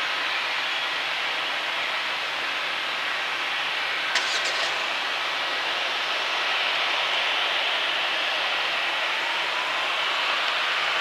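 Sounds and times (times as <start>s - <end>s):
sharp click: 4.2s - 5.0s
jet engines hissing: 4.2s - 6.0s.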